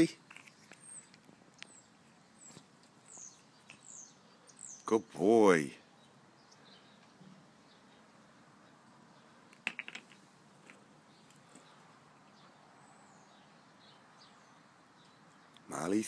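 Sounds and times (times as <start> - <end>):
faint bird chirps: 0.4 - 5.0.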